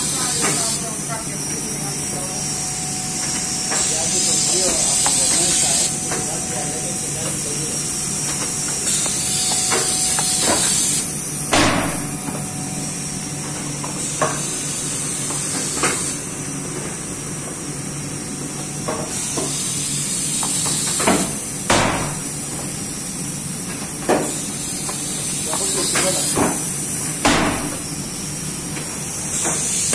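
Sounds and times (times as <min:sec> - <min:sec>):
machine humming: 0:00.0 - 0:29.9
sharp machine clunks: 0:11.5 - 0:12.2, 0:21.7 - 0:22.2.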